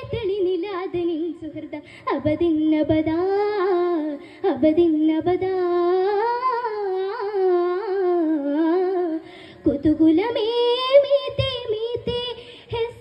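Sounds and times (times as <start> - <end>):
girl singing unaccompanied: 0.0 - 13.0.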